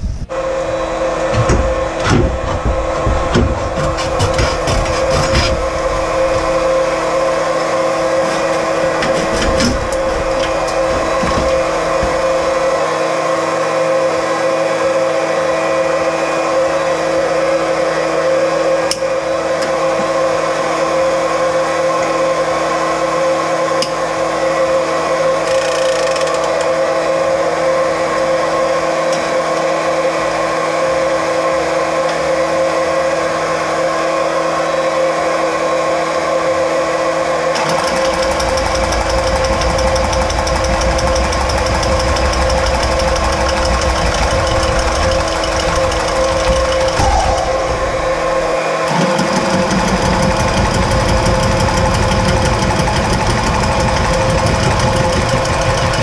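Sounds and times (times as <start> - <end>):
electric pump motor running: 0.0 - 56.0.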